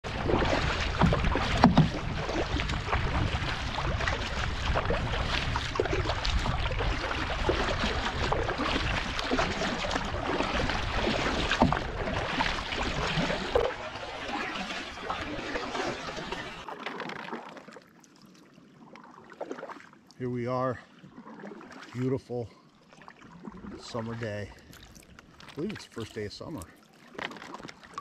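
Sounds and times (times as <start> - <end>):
wind rumble on microphone: 0.0 - 13.7
paddle splashing in water: 0.0 - 28.0
water washing along hull: 0.0 - 28.0.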